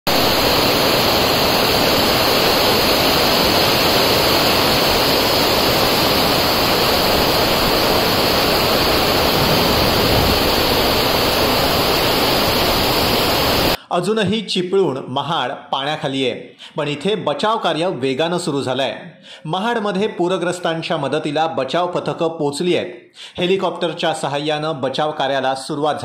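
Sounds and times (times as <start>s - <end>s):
heavy rain pouring: 0.1s - 13.8s.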